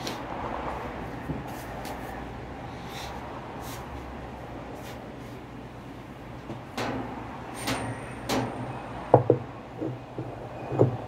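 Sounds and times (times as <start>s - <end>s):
sharp knocks: 6.8s - 11.0s.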